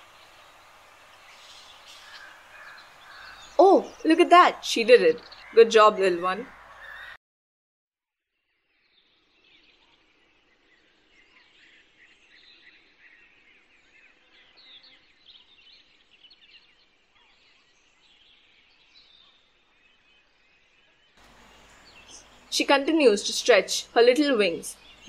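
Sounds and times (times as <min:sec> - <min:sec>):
small birds chirping: 0:00.0 - 0:07.2, 0:08.7 - 0:25.0.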